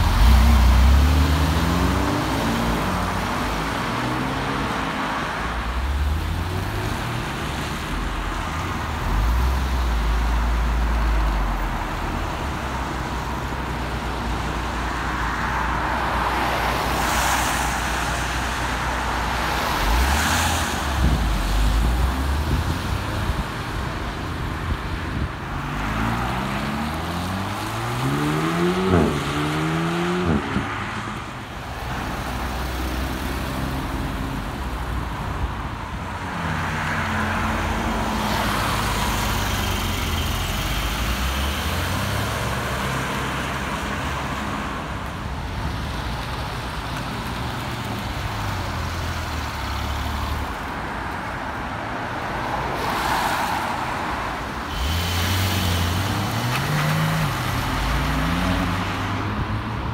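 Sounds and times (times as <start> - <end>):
sports car engines revving: 0.0 - 8.1, 25.1 - 34.7, 54.0 - 59.9
steady road traffic: 0.0 - 59.9.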